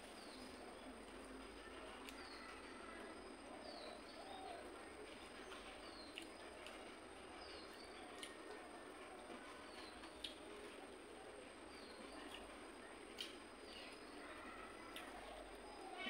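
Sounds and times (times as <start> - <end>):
faint bird calls: 13.2 - 16.0.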